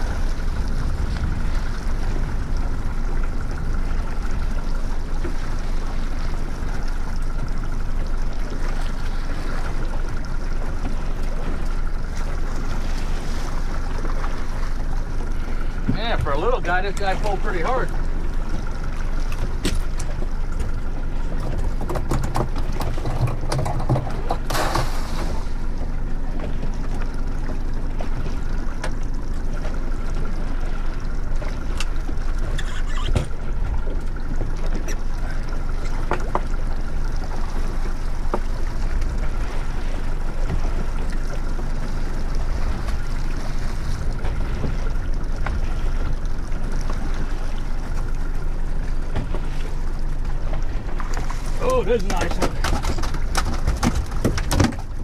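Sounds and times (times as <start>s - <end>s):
outboard motor running: 0.0s - 55.0s
water and wind noise: 0.0s - 55.0s.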